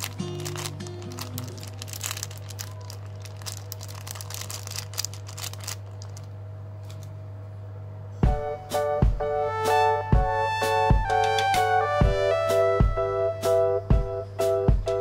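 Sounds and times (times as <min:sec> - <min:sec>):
soft background music: 0:00.0 - 0:04.5, 0:08.2 - 0:15.0
plastic bag crinkling: 0:00.0 - 0:07.1
steady low hum: 0:00.0 - 0:15.0.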